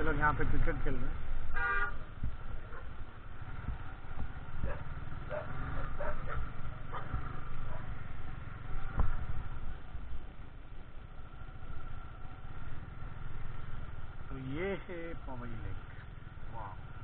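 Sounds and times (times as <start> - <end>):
motorcycle engine running: 0.0 - 17.0
dog barking: 2.7 - 3.0, 4.6 - 8.0.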